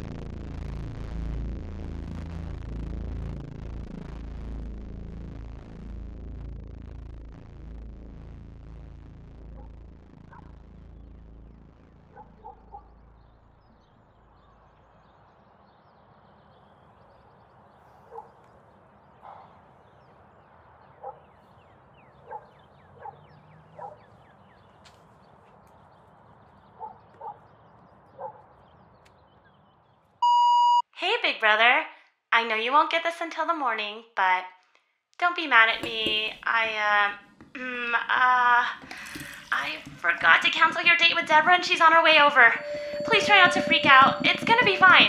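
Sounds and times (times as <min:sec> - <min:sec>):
distant dog barking: 0:12.1 - 0:12.9, 0:18.0 - 0:18.4, 0:19.2 - 0:19.7, 0:20.9 - 0:21.4, 0:22.2 - 0:24.2, 0:26.7 - 0:27.5, 0:28.1 - 0:28.5
phone button beep: 0:30.2 - 0:30.8, 0:42.6 - 0:45.0.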